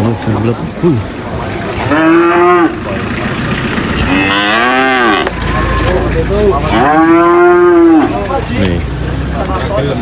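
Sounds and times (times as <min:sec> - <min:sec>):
cattle mooing: 0:01.8 - 0:03.0, 0:03.8 - 0:08.3.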